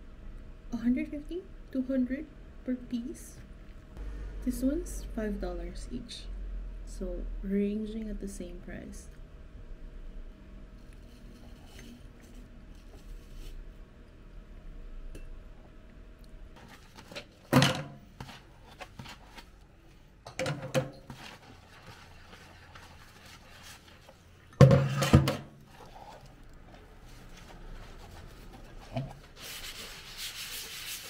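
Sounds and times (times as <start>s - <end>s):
sponge scrubbing dishes: 18.1s - 19.6s, 21.0s - 26.4s, 27.1s - 31.0s.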